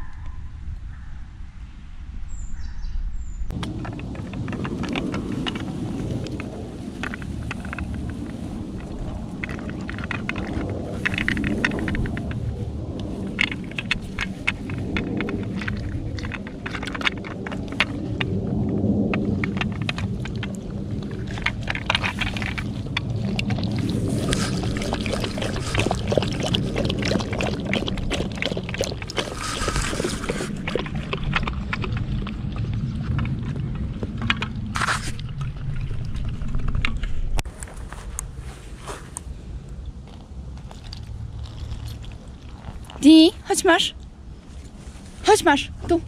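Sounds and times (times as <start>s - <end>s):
steady low rumble: 0.0s - 46.0s
dog lapping water: 13.0s - 36.6s, 40.6s - 43.8s.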